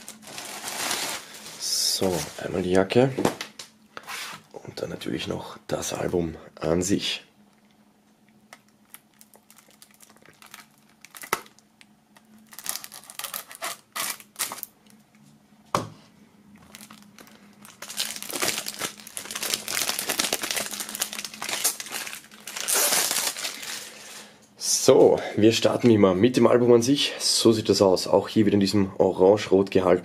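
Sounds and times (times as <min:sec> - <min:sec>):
knife slitting plastic wrap: 0:00.0 - 0:01.5, 0:12.5 - 0:14.7, 0:17.8 - 0:24.0
plastic shrink-wrap crinkling: 0:00.0 - 0:02.5, 0:08.5 - 0:15.0, 0:16.6 - 0:24.3.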